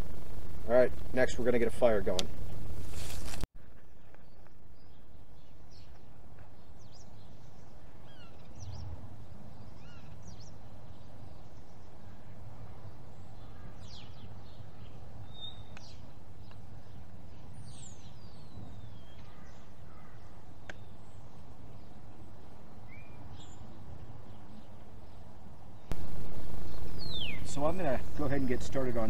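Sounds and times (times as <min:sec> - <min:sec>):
low rumble: 0:00.0 - 0:01.5, 0:25.9 - 0:28.3
bird chirps and calls: 0:06.6 - 0:09.0, 0:09.6 - 0:21.3, 0:26.1 - 0:29.0.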